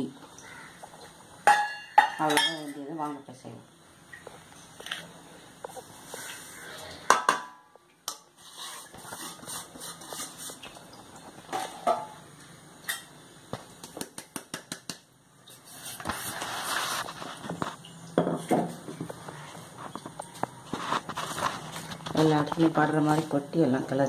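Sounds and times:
soft rustling scrape: 8.4s - 10.6s, 15.6s - 17.8s, 20.6s - 23.4s.

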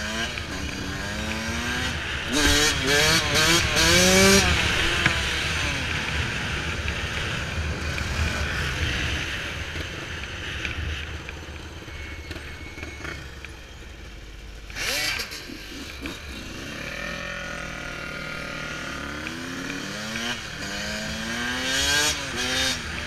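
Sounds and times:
dirt bike engine revving: 0.0s - 6.4s, 14.7s - 23.0s.

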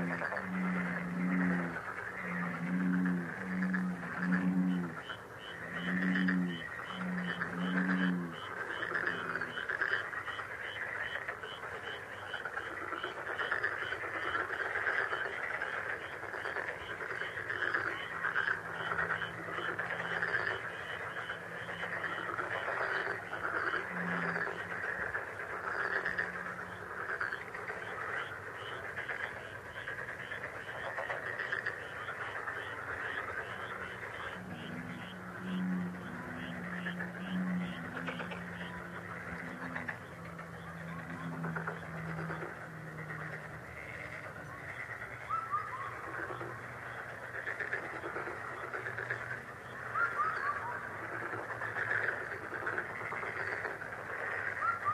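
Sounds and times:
pulsing chorus of calling animals: 0.0s - 54.9s.

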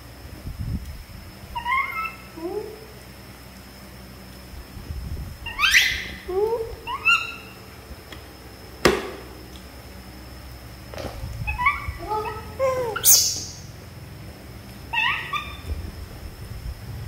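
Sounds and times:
macaques squeaky calls: 1.5s - 2.9s, 5.4s - 7.8s, 11.4s - 13.7s, 14.9s - 15.7s.

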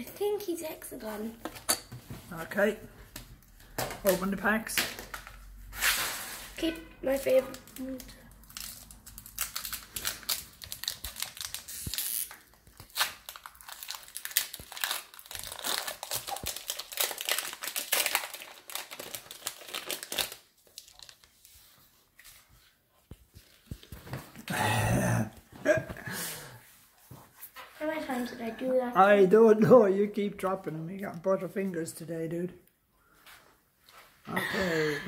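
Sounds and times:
foil wrapper tearing and crinkling: 7.5s - 21.3s.

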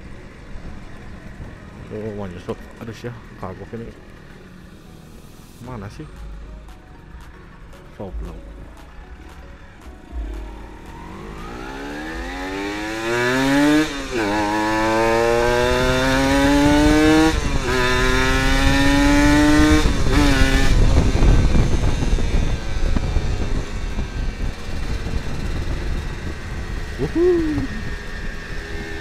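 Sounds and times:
motorcycle accelerating: 0.0s - 29.0s
wind rush on microphone: 18.5s - 29.0s.

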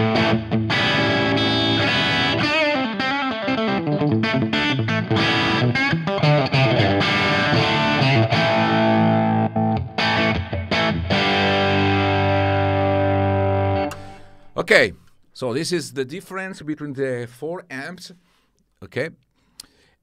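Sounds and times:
overdriven electric guitar: 0.0s - 14.6s.

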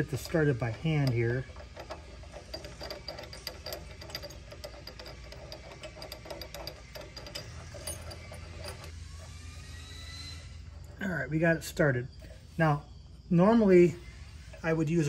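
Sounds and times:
metallic clicking of spinning hitch ball: 0.0s - 9.4s.

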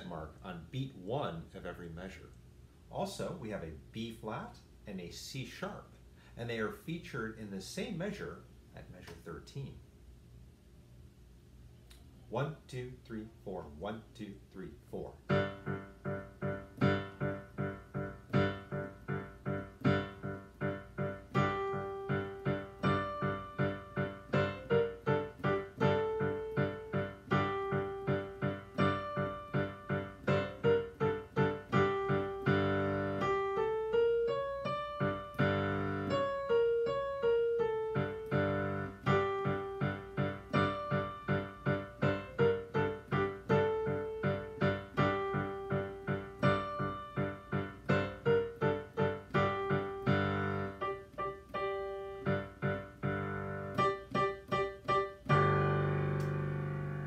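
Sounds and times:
digital piano playing: 15.2s - 57.0s.

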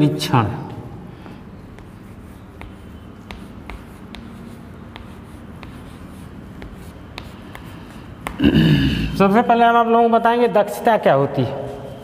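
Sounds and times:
chalk tapping and scratching on board: 1.2s - 8.4s.

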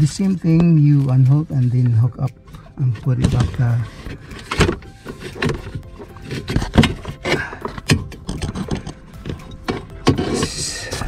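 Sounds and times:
plastic parts clicking and knocking: 3.0s - 10.5s.

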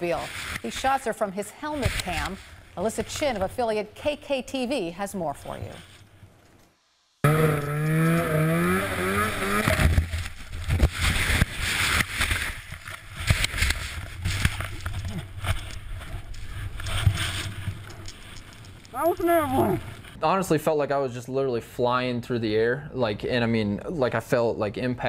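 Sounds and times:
snowmobile engine revving: 7.2s - 10.2s.

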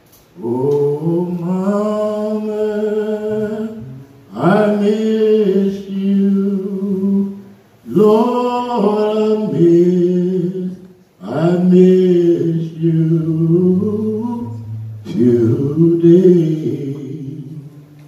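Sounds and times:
person singing a slow lament: 0.4s - 17.8s.

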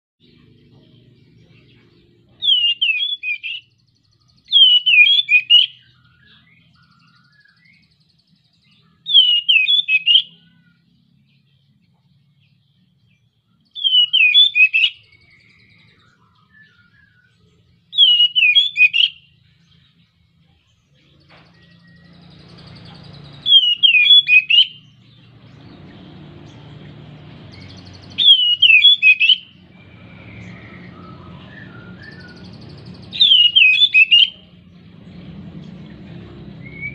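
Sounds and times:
bird whistling phrase: 2.4s - 3.7s, 4.5s - 7.8s, 9.1s - 10.8s, 13.8s - 19.3s, 23.4s - 24.8s, 27.6s - 34.5s, 36.6s - 36.9s.

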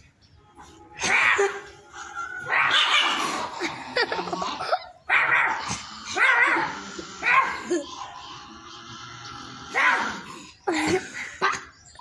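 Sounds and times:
small dog barking: 5.1s - 5.6s, 6.2s - 7.6s, 9.7s - 10.2s.

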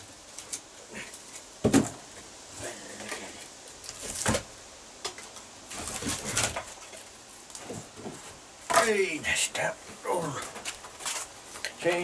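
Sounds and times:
firewood knocking and clattering: 1.6s - 2.2s, 3.9s - 9.0s.

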